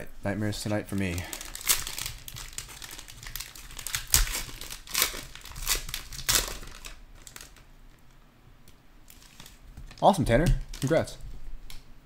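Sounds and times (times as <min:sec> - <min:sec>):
foil wrapper crinkling: 0:00.6 - 0:08.0, 0:09.0 - 0:11.2
foil wrapper ripping: 0:00.9 - 0:07.6.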